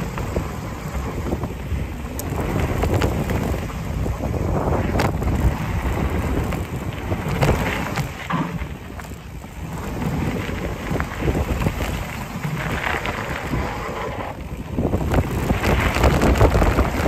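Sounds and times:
bike clicks and rattles: 0.0s - 17.0s
tyres rumbling over dirt: 0.0s - 17.0s
wind buffeting microphone: 0.0s - 17.0s.

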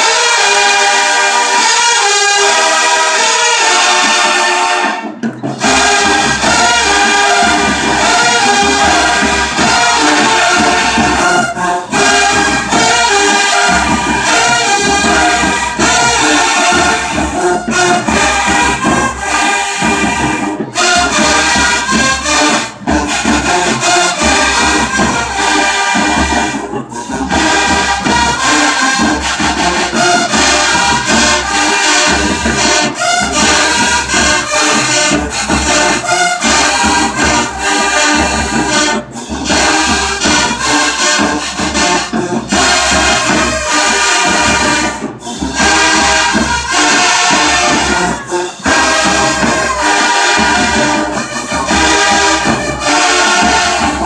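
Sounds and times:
brass section playing: 0.0s - 54.0s
marching drums: 0.0s - 54.0s.

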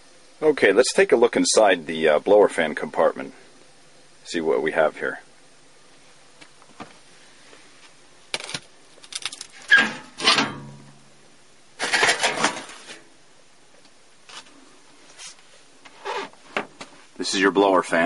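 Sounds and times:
sheet metal clanking and scraping: 9.7s - 10.9s, 11.8s - 12.9s.

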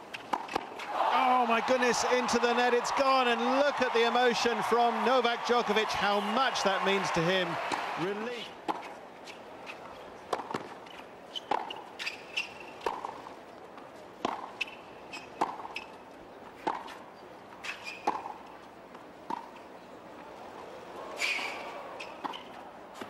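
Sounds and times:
shoes squeaking on court: 8.8s - 13.3s, 14.3s - 18.6s, 21.2s - 23.0s.

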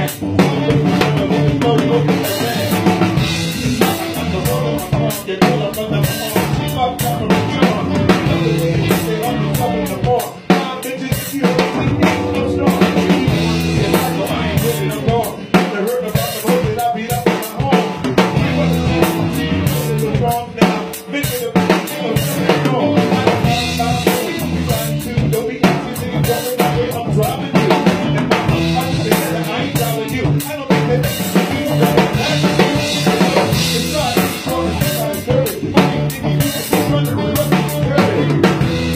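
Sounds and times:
drum kit groove: 0.0s - 38.9s
sustained pitched instruments: 11.5s - 15.0s.

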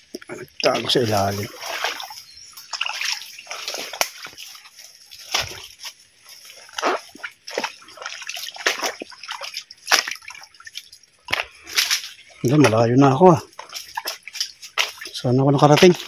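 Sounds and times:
feet wading and splashing in stream: 0.0s - 16.0s.

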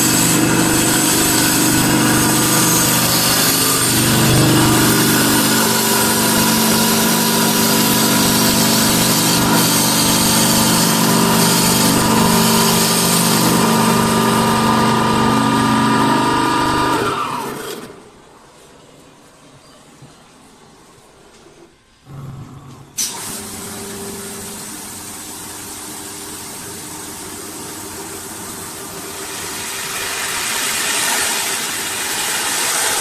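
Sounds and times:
sanding hiss: 0.0s - 13.4s, 23.2s - 33.0s
motor hum: 0.0s - 17.9s.

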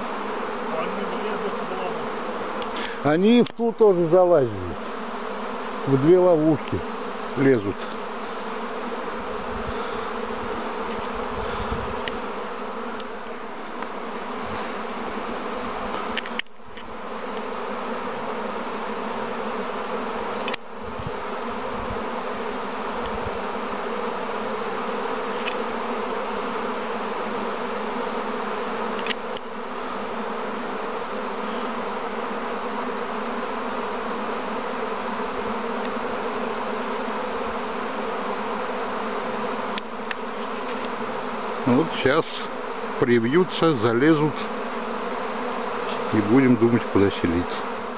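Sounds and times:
honeybee swarm humming: 0.0s - 47.9s.

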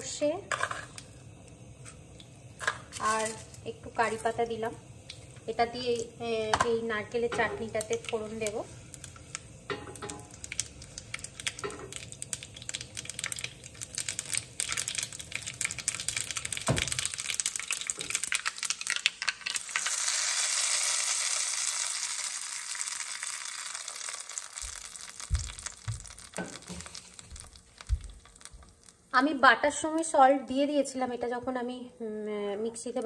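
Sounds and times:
loud sizzling hiss: 0.0s - 15.6s
seeds crackling in hot oil: 0.0s - 31.3s, 32.6s - 33.0s.

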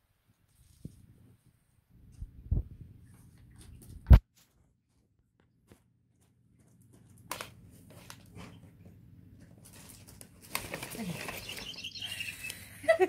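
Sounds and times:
paper rustling and crinkling: 9.4s - 11.9s.

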